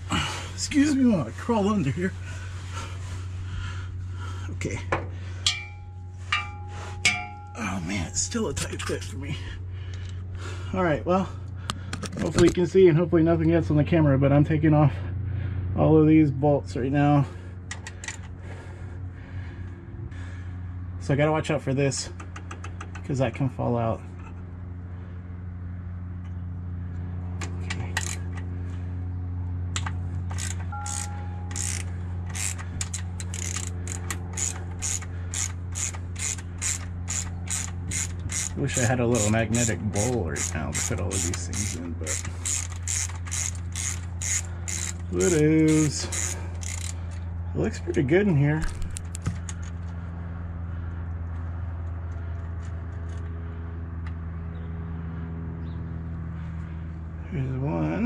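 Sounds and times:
steady low hum: 0.0s - 58.0s
socket ratchet clicking: 29.7s - 38.6s, 40.4s - 47.0s.

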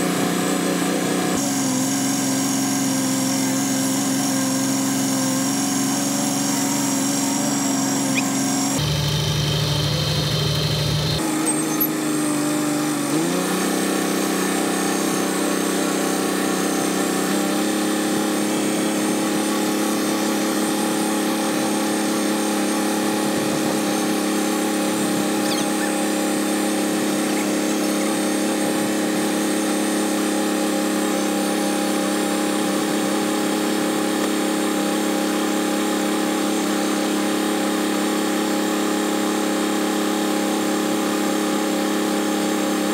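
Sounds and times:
tractor engine running: 1.4s - 34.6s.

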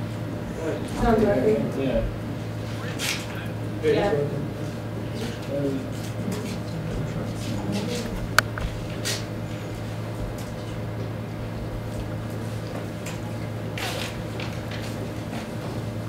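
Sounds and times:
steady low hum: 0.0s - 16.0s
sharp click: 8.4s - 8.6s.

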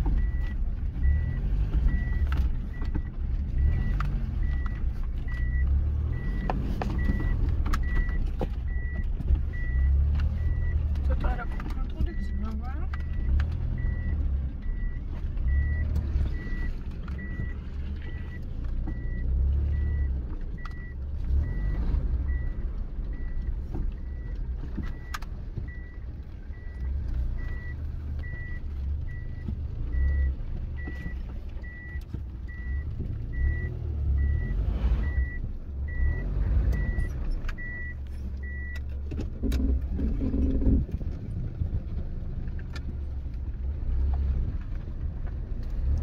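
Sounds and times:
car engine and road rumble: 0.0s - 46.0s
dashboard warning chime beeping: 0.1s - 38.8s.

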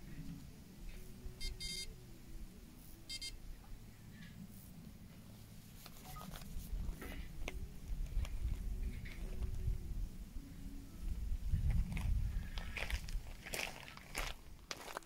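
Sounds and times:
high-pitched electronic beeps: 1.3s - 2.0s, 3.1s - 3.4s.

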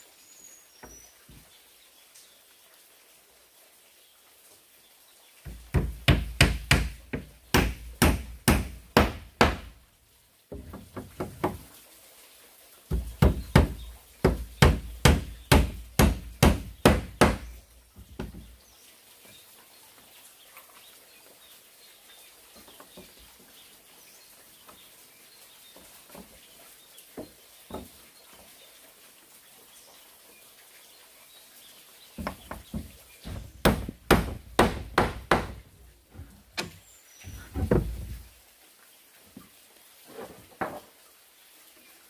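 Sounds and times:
hand tool striking wood: 5.5s - 9.8s, 10.5s - 11.7s, 12.9s - 18.5s, 32.2s - 36.8s.

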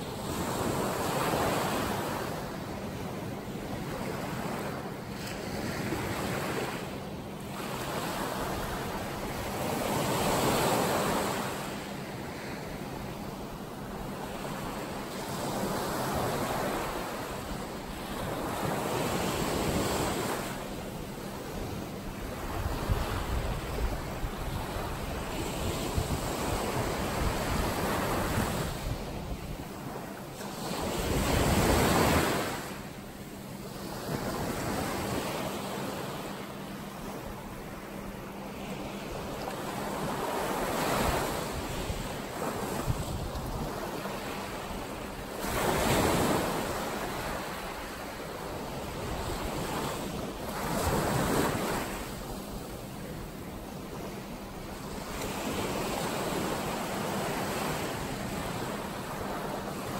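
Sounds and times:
ocean waves washing in: 0.0s - 59.9s
wind rumbling on microphone: 21.2s - 32.8s, 38.3s - 59.9s.

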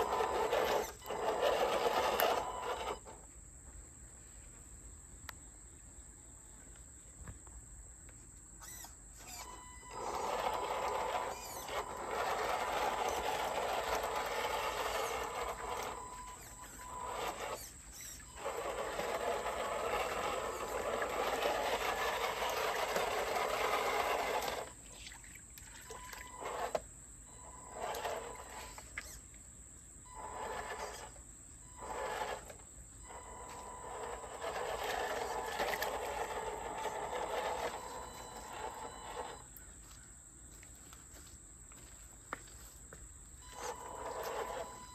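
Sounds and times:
toy car electric motor running: 0.0s - 3.2s, 8.6s - 24.8s, 25.8s - 29.2s, 30.1s - 39.5s, 43.4s - 44.9s
tyres churning water and gravel: 10.0s - 17.7s, 18.4s - 26.7s, 33.8s - 39.2s.

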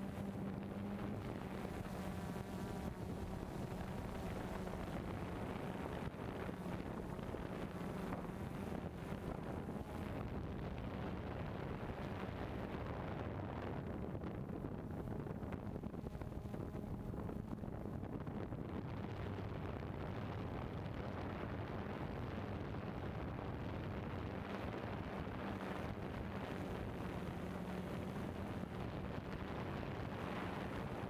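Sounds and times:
drone propellers humming: 0.0s - 12.0s, 24.4s - 31.0s
wind noise on microphone: 0.0s - 31.0s.

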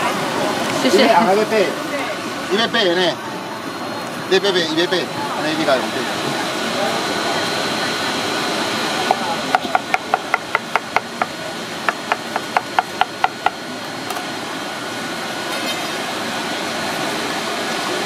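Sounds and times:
background hum and hiss: 0.0s - 18.0s
knife chopping on wooden board: 11.9s - 13.6s.

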